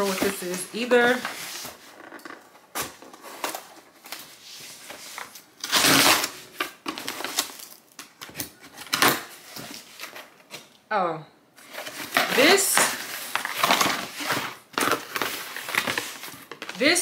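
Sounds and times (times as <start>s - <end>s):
packaging rustling and tearing: 0.0s - 10.6s, 11.6s - 16.8s
loud packaging rip: 5.6s - 7.8s.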